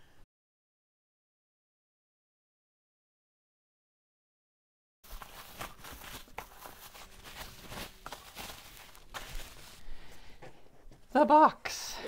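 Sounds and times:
bubble wrap rustling and crinkling: 5.0s - 10.0s.

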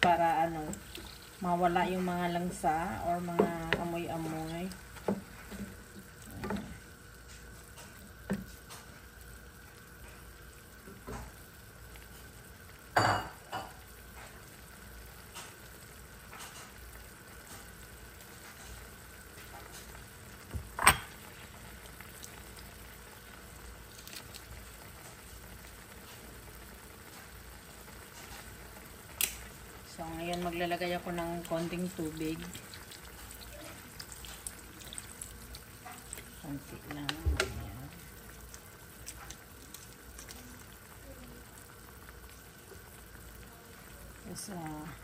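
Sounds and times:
wooden spatula stirring: 0.0s - 6.8s, 30.2s - 37.9s
meat sizzling in a skillet: 0.0s - 45.0s.

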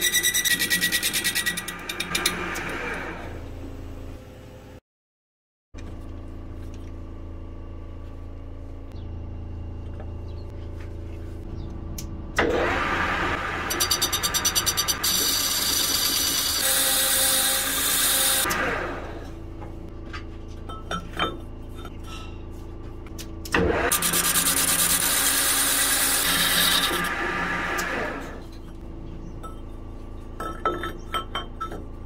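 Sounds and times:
cutting tool scraping metal: 0.0s - 2.7s, 13.7s - 18.5s
metal lathe running: 12.4s - 19.0s.

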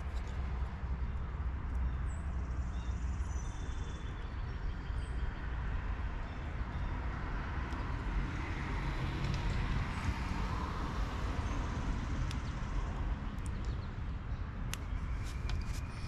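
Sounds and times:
road traffic rumble: 4.5s - 16.0s.

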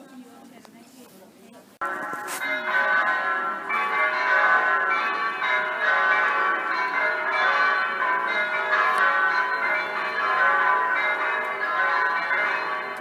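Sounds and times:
electronic church bells ringing: 1.8s - 13.0s.

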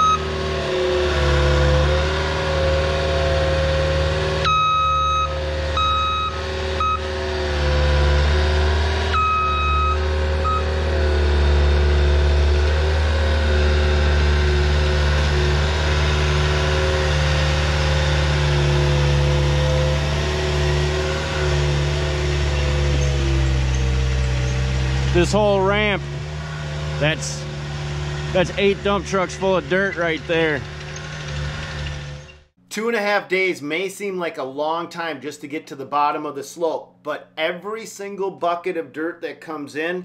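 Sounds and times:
backup alarm beeping: 0.0s - 0.3s, 4.4s - 7.2s, 9.1s - 10.8s
diesel engine running: 0.0s - 32.5s.

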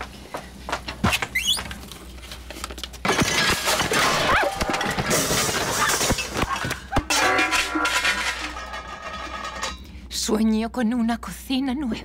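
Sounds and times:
dishes and pans smashing: 3.0s - 9.8s
cabinet crashing down: 3.1s - 9.6s.

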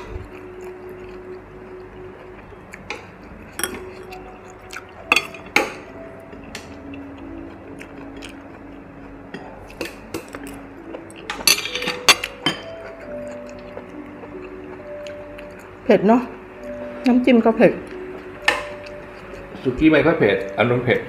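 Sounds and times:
metal tongs clinking on grill plate: 11.3s - 12.7s.

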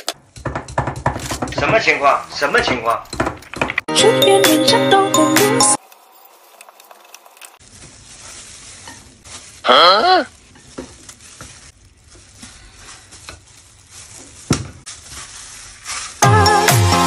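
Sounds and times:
plastic gloves rustling: 5.8s - 16.2s.

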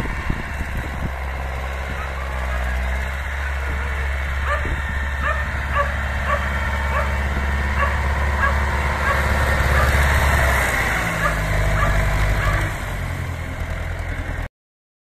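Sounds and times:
tractor engine running: 0.0s - 14.5s
dog yipping: 5.2s - 7.1s, 7.8s - 9.2s, 11.2s - 12.7s.

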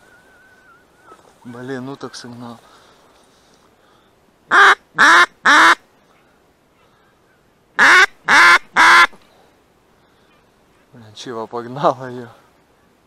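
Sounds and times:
duck quacking: 4.5s - 5.8s, 7.8s - 9.2s.

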